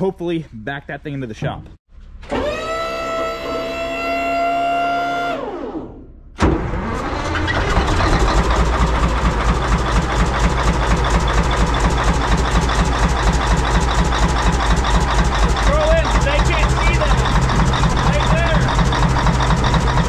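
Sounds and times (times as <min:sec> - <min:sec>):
whine winding down: 0:02.2 - 0:20.0
diesel engine idling: 0:07.1 - 0:20.0.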